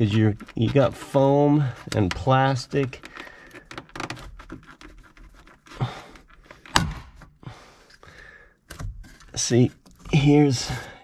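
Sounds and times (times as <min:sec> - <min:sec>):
plastic scraping and rubbing: 0:00.0 - 0:08.0, 0:08.6 - 0:11.0
plastic fastener clicks: 0:01.8 - 0:07.2.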